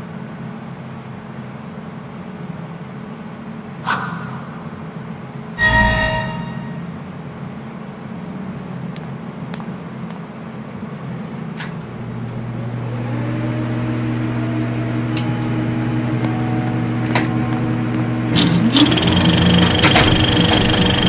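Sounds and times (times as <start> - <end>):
low electrical drone: 11.8 - 21.0
rumbling machinery background: 11.8 - 21.0.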